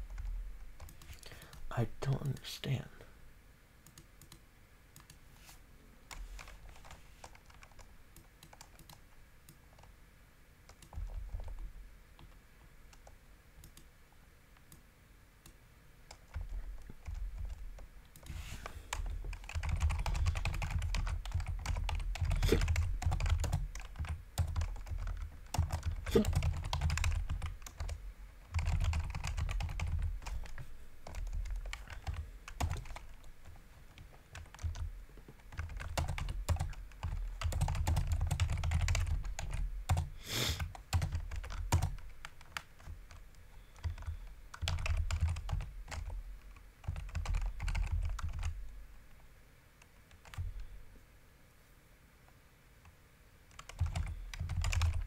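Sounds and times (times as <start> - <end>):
typing on computer keyboard: 0.1 - 1.6, 6.1 - 9.9, 10.7 - 11.6, 16.1 - 18.3, 18.9 - 33.3, 33.9 - 48.6, 50.1 - 50.7, 53.5 - 55.0.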